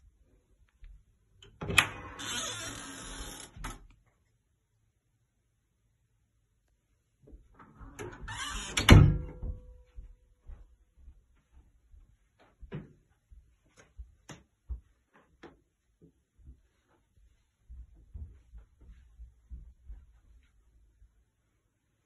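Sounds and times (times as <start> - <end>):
door shutting with a thud: 7.9 - 9.7.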